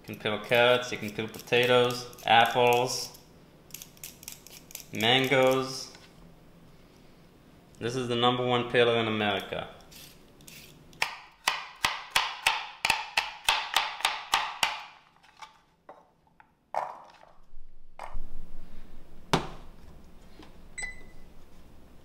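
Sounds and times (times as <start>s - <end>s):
short beep: 20.8s - 21.2s.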